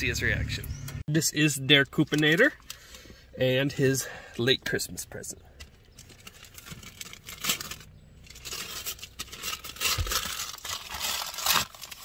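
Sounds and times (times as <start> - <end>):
wrapping paper tearing and crumpling: 6.2 - 12.0.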